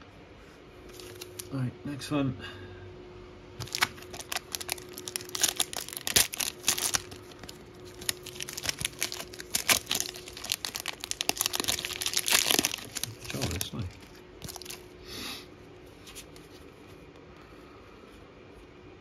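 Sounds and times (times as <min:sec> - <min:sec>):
foil wrapper crinkling and tearing: 0:00.9 - 0:01.6, 0:03.6 - 0:14.9.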